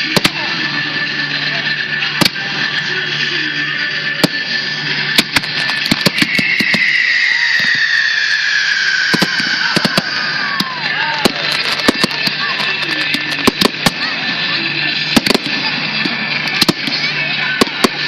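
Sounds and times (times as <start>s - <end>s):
fireworks crackling hiss: 0.0s - 18.0s
whistling fireworks: 0.0s - 18.0s
fireworks bangs: 4.1s - 18.0s.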